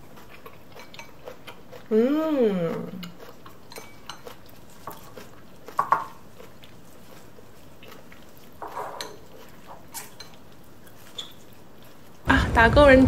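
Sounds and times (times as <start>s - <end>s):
chopsticks clattering: 3.0s - 6.2s, 8.6s - 11.0s
chopsticks tapping ceramic bowl: 5.8s - 6.1s.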